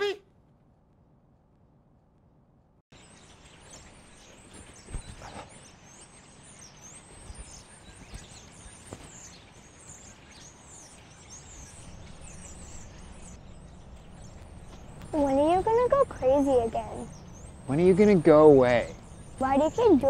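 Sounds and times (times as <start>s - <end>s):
small birds chirping: 2.9s - 20.0s.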